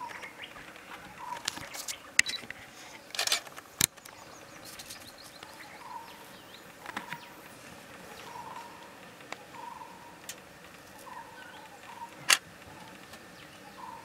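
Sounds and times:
sharp clicks: 0.0 - 5.6
rustling: 0.0 - 13.6
bird calls: 0.0 - 14.0.

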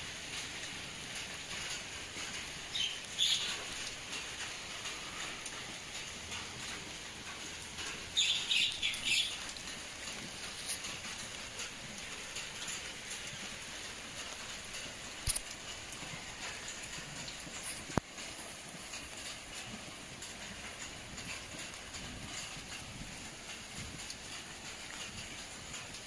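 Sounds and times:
outdoor hiss: 0.0 - 26.0
high bird chirps: 8.2 - 9.4.

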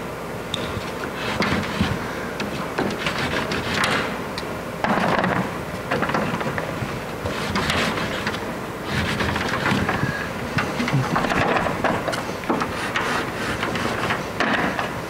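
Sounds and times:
chalk scraping on board: 1.1 - 2.0, 2.8 - 4.2, 7.2 - 9.6, 12.6 - 14.2.

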